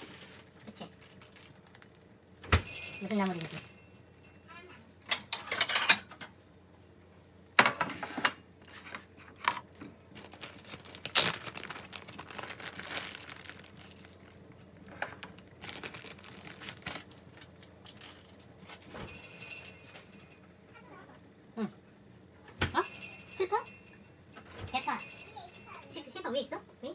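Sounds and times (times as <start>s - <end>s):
plastic bag crinkling: 0.0s - 2.1s, 3.0s - 3.8s, 10.1s - 18.9s.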